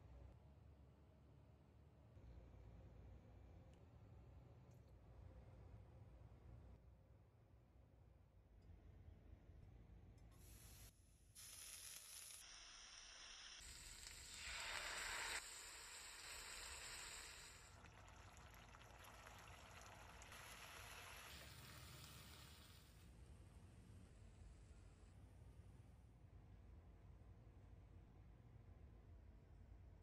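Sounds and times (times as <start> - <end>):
food sizzling in hot oil: 10.6 - 23.0.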